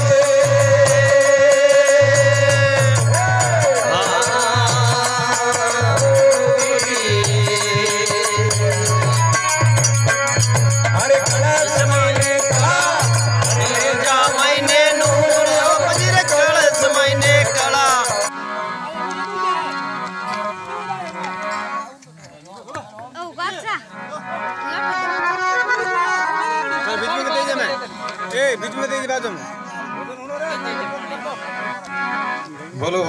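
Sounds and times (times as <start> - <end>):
dholak drum beat: 0.0 - 18.3
man singing: 0.0 - 18.3
harmonium: 0.0 - 33.0.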